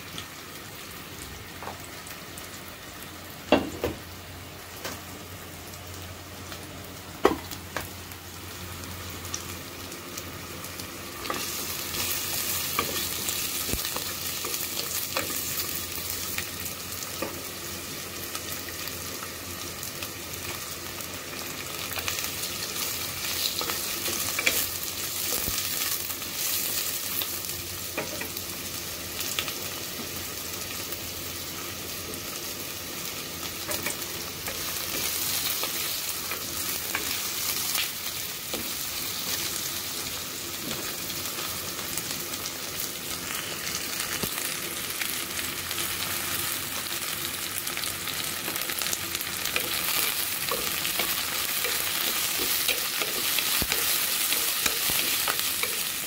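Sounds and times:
aromatics sizzling in a pot: 0:00.0 - 0:56.0.

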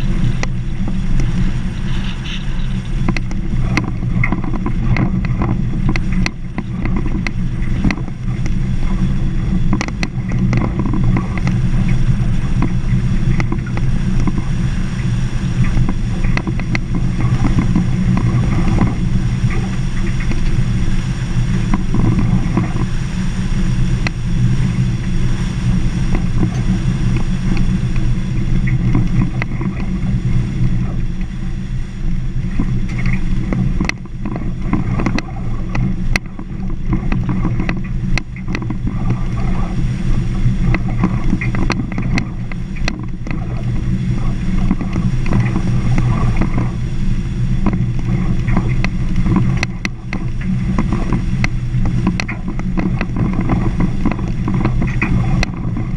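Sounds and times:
engine and tyre rumble: 0:00.0 - 0:55.9.

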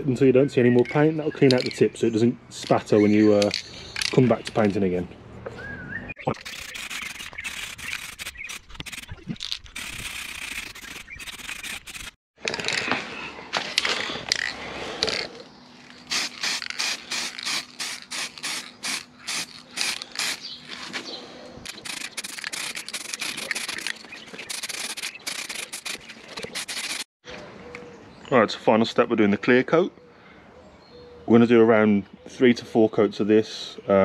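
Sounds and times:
spray paint can hissing: 0:06.4 - 0:12.2, 0:16.1 - 0:20.5, 0:21.7 - 0:27.1.

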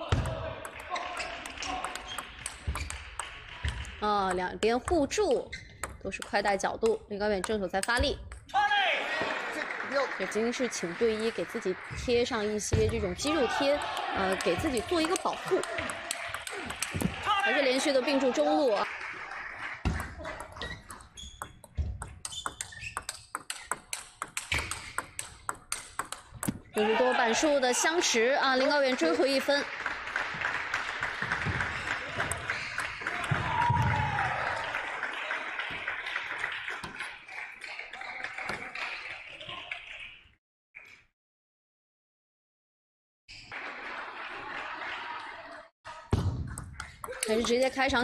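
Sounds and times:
table tennis ball clicks: 0:20.0 - 0:26.7.

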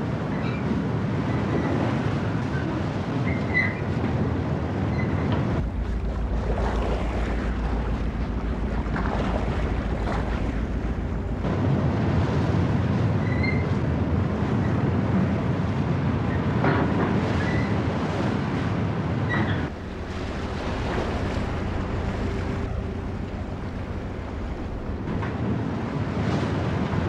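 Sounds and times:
rough sea breaking on hull: 0:00.0 - 0:27.0
wind on microphone: 0:00.0 - 0:27.0
low steady rumble: 0:02.6 - 0:27.0.

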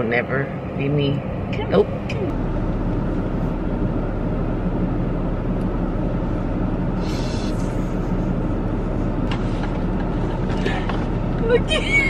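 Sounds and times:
car cabin rumble: 0:00.0 - 0:12.0
short hiss: 0:07.0 - 0:07.8.

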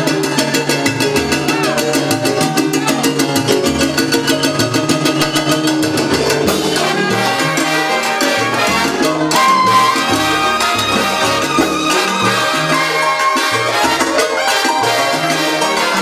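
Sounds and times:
bass: 0:00.0 - 0:16.0
latin percussion quick beat: 0:00.0 - 0:16.0
piano: 0:00.0 - 0:16.0
brass section playing: 0:05.8 - 0:16.0
saxophones: 0:06.4 - 0:16.0.

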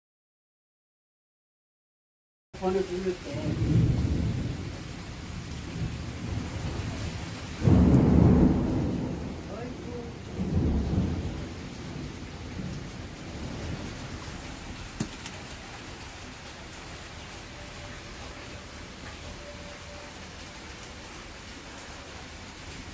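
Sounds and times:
steady rain: 0:02.6 - 0:22.9
thunder rumbling: 0:03.2 - 0:20.6.

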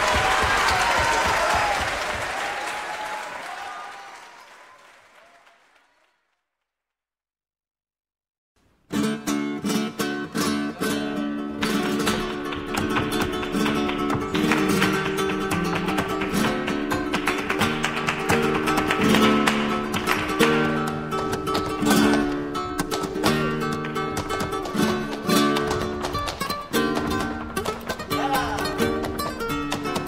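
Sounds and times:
flamenco guitar strumming: 0:08.9 - 0:30.0.

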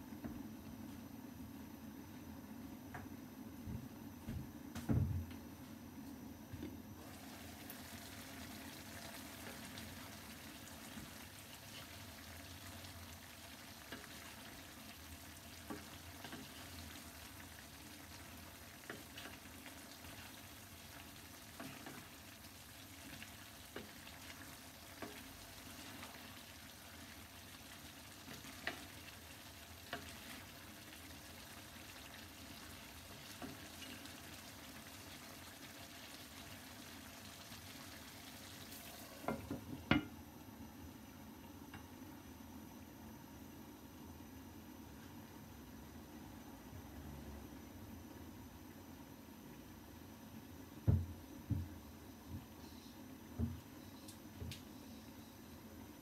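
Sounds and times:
vegetables sizzling in a pan: 0:07.0 - 0:40.1.

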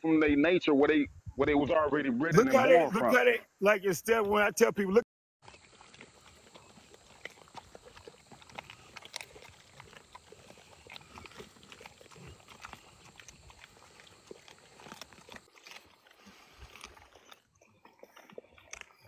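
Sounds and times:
puppies chewing crunches: 0:05.4 - 0:19.0.

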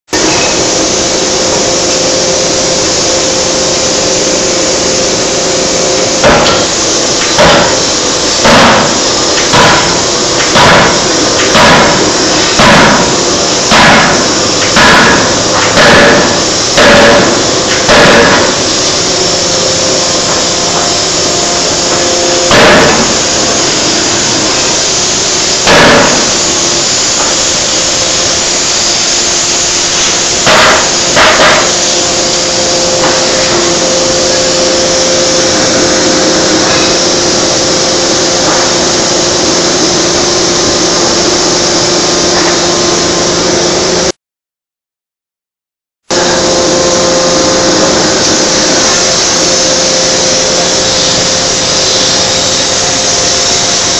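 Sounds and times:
loud steady machine hum: 0:00.1 - 0:44.2, 0:46.0 - 0:53.9
forging hammer heavy blows: 0:05.1 - 0:28.0, 0:29.8 - 0:32.2.

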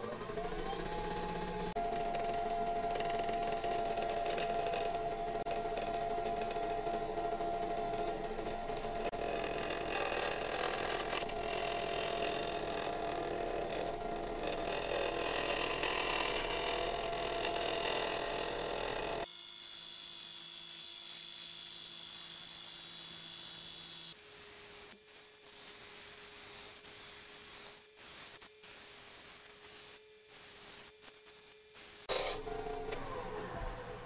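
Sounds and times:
lathe motor hum: 0:00.0 - 0:19.3
lathe tool cutting: 0:02.9 - 0:19.3.

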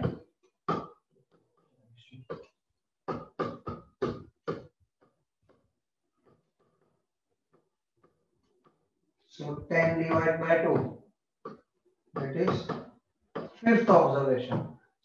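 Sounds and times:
man speaking short syllables: 0:09.4 - 0:10.9, 0:12.2 - 0:12.8.

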